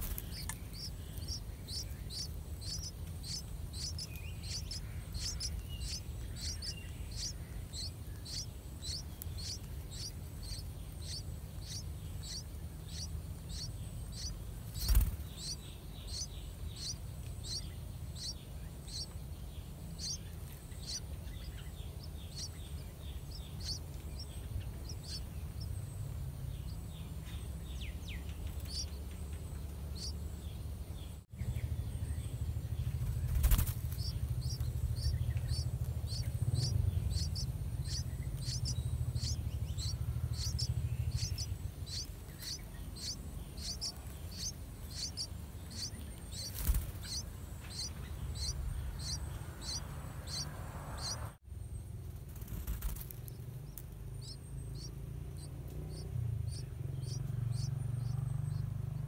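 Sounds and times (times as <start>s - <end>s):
nestlings chirping: 0.0s - 59.0s
low rumble: 19.8s - 59.0s.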